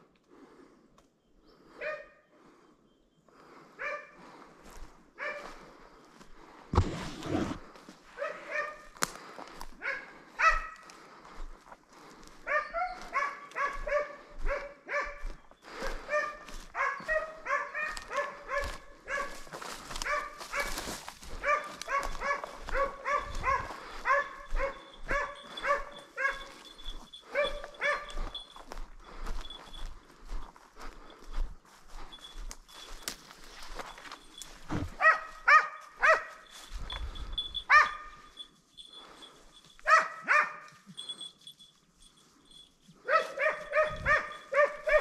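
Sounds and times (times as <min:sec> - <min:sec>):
hound yelping barks: 0:01.8 - 0:02.2, 0:03.8 - 0:04.2, 0:05.2 - 0:05.5, 0:08.2 - 0:09.0, 0:09.8 - 0:10.9, 0:12.4 - 0:28.5, 0:34.8 - 0:36.5, 0:37.4 - 0:38.5, 0:39.8 - 0:41.2, 0:43.0 - 0:45.0.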